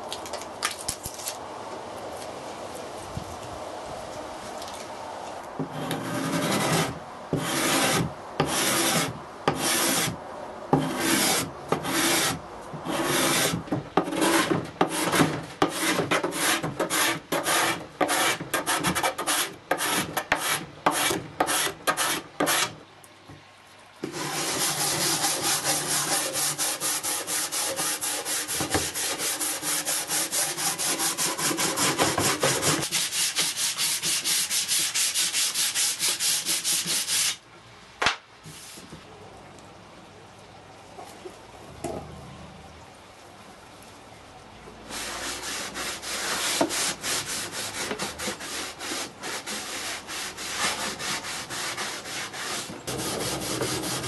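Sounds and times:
card scraper rasping on wood: 0:05.7 - 0:10.2, 0:10.8 - 0:22.7, 0:24.0 - 0:37.4, 0:46.2 - 0:54.0
hand sanding wood: 0:05.7 - 0:10.2, 0:10.8 - 0:22.8, 0:24.0 - 0:37.4, 0:44.9 - 0:54.0.

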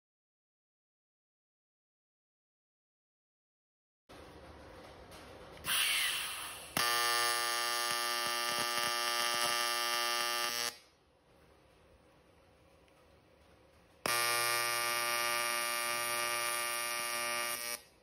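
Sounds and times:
welding arc buzzing: 0:05.6 - 0:10.9, 0:14.0 - 0:18.0.

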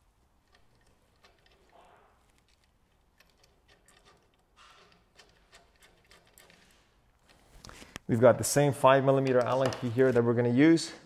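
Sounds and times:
small metal hardware clicking: 0:00.4 - 0:07.4.

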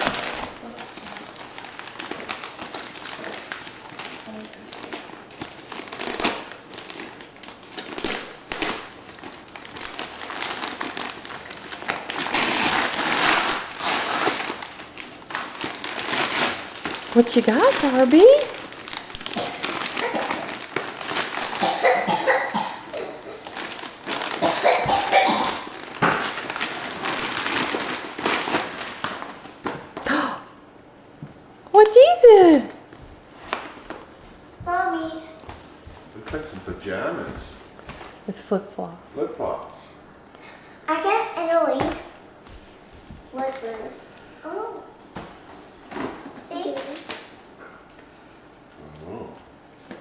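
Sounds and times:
wrapping paper tearing and crinkling: 0:00.0 - 0:29.7, 0:33.4 - 0:34.2, 0:45.9 - 0:47.4.

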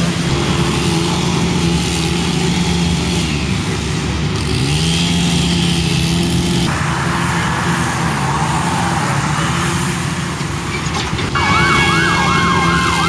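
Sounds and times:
engine hum: 0:00.0 - 0:13.0
road traffic: 0:00.0 - 0:13.0
siren wailing: 0:11.3 - 0:13.0.

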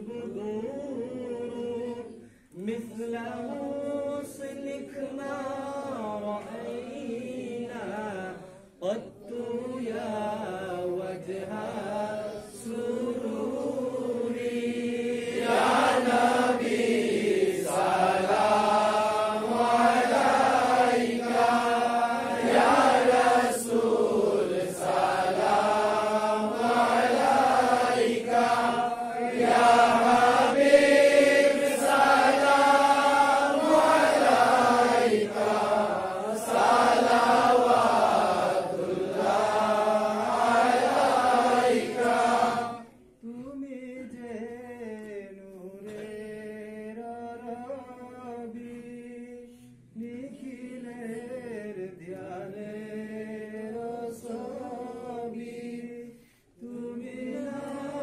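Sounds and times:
voices chanting: 0:11.3 - 0:42.9.

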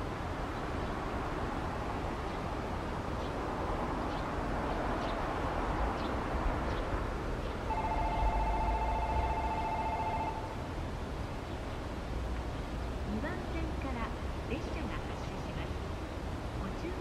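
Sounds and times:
outdoor noise: 0:00.0 - 0:17.0
electronic two-note ringing tone: 0:07.7 - 0:10.6.

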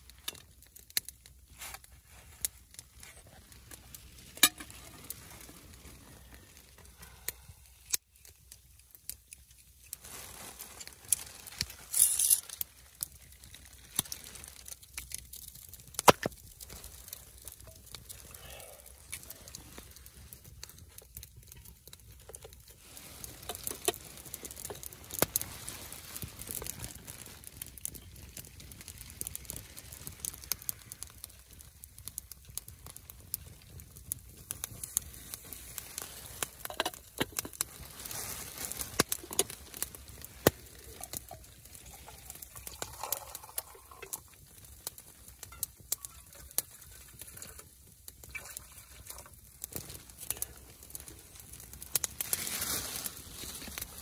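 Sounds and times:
light rustling and crinkling: 0:00.0 - 0:54.0
wood fire crackling: 0:00.0 - 0:54.0
sharp pops and ticks: 0:06.9 - 0:10.0, 0:13.9 - 0:18.3, 0:26.5 - 0:37.7, 0:38.7 - 0:48.6.

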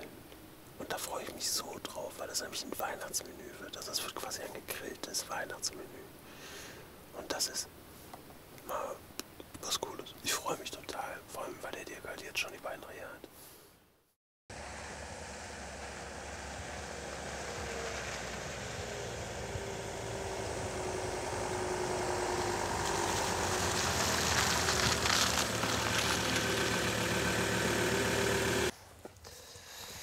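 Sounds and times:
vehicle engine approaching: 0:14.5 - 0:28.7.

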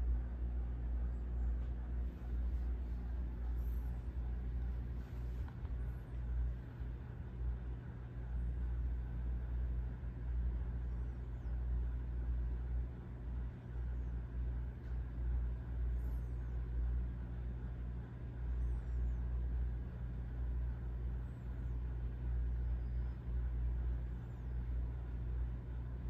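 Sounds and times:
faint hum: 0:00.0 - 0:26.0.

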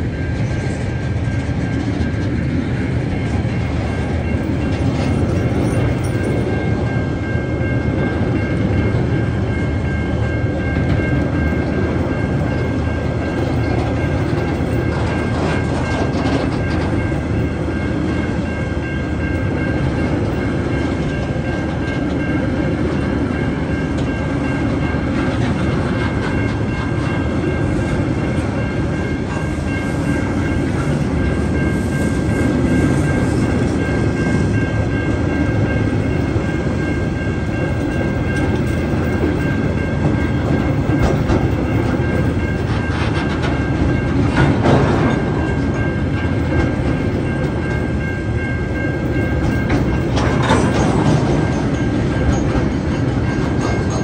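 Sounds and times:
crossing bells warning tone: 0:00.0 - 0:54.0
train wheels rumbling on rail: 0:00.0 - 0:54.0
clacks over rail joints: 0:10.7 - 0:17.8, 0:36.8 - 0:48.0, 0:48.7 - 0:54.0.

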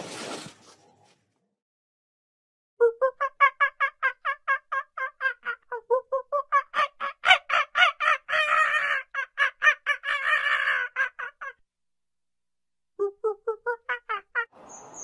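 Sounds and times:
monkey calling: 0:06.4 - 0:11.6.

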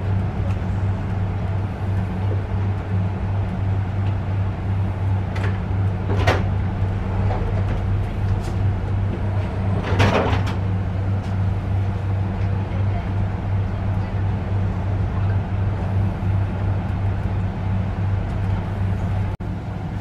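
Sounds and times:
moving train hum and rumble: 0:00.0 - 0:20.0
knocks and clatters: 0:07.2 - 0:11.4.

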